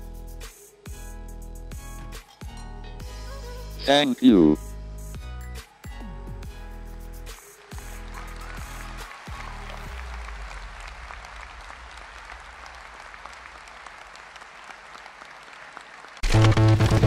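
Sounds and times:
electronic music with steady beat: 0:00.0 - 0:10.1
audience applauding: 0:06.7 - 0:17.0.

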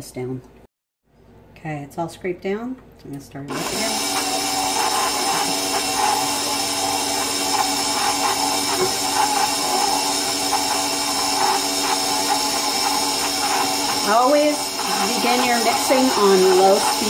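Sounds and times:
stand mixer motor whining: 0:03.5 - 0:17.0.

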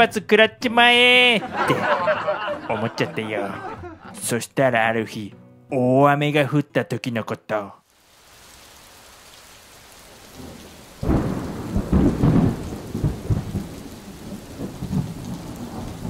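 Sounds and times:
heavy rain: 0:07.8 - 0:16.0
thunder rumbling: 0:10.1 - 0:16.0.

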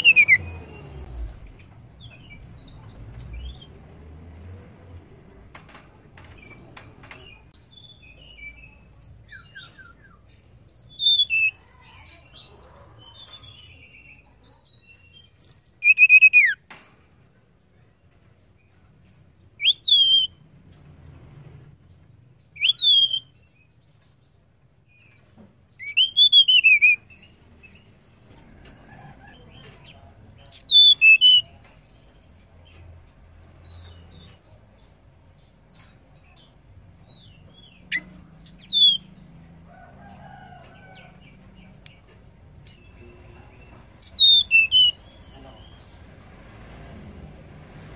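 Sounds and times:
bird whistled notes: 0:00.0 - 0:00.5.

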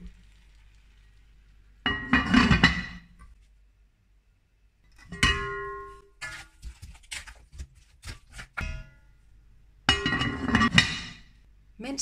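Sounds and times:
glass lid clinking on metal pot: 0:01.9 - 0:03.0, 0:05.1 - 0:06.0, 0:09.9 - 0:11.2.

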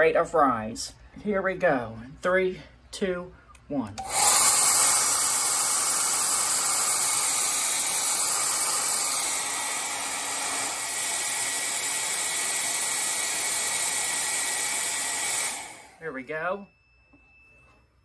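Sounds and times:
hair dryer blowing air: 0:04.0 - 0:16.0.

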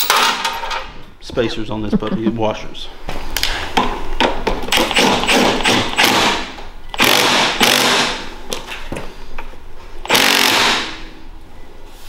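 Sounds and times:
power tool running bolt: 0:07.0 - 0:08.2, 0:10.1 - 0:11.0.

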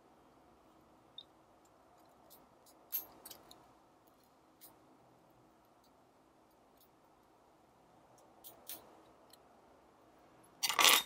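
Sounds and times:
tweezers clicking on metal parts: 0:08.1 - 0:09.5.

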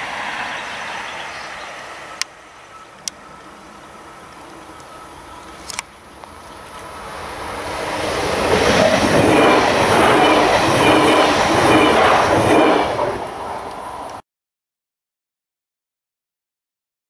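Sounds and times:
train passing at speed: 0:00.0 - 0:14.2
rhythmic wheel clatter: 0:08.5 - 0:12.8.

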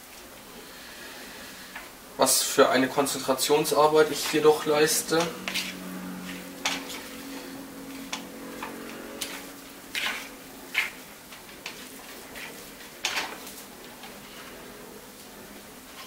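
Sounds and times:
metal spoon scraping a bowl: 0:05.2 - 0:11.0.

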